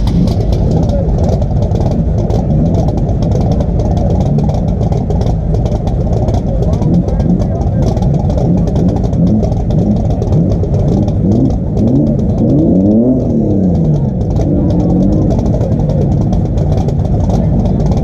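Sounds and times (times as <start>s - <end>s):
race car engine idling and revving: 0.0s - 18.0s.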